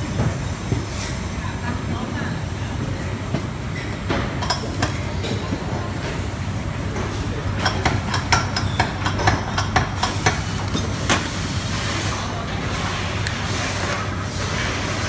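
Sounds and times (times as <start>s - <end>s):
workshop machinery humming: 0.0s - 15.0s.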